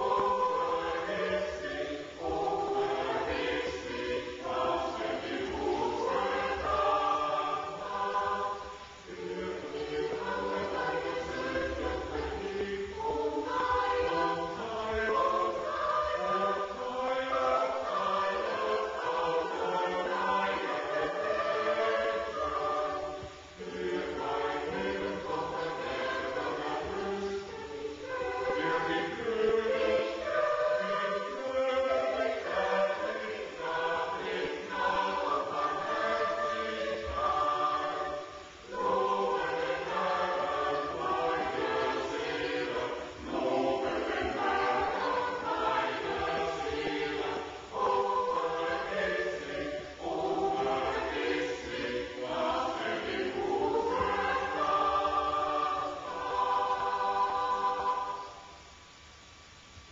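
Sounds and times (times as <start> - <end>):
mixed choir singing: 0.0 - 59.0.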